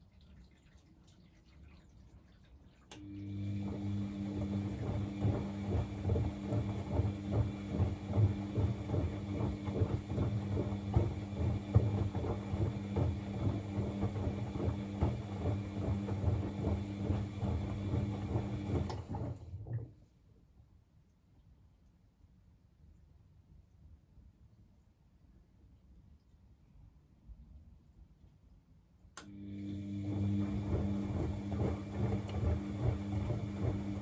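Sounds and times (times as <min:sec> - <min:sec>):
washing machine motor hum: 0:02.7 - 0:20.1, 0:29.2 - 0:34.0
wet laundry sloshing and thudding: 0:03.4 - 0:20.0, 0:29.8 - 0:34.0.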